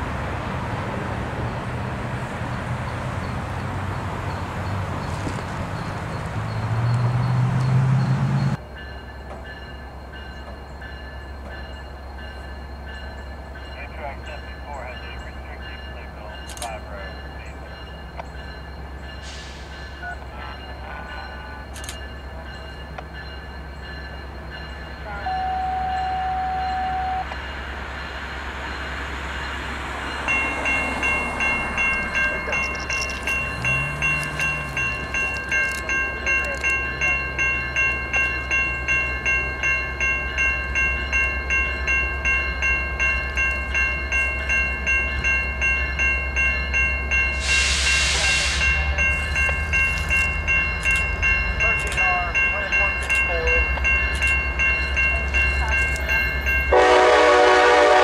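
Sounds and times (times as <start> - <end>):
crossing bell ringing: 2.9 - 58.0
distant train horn: 25.0 - 27.4, 56.7 - 58.0
short hiss: 47.4 - 48.8.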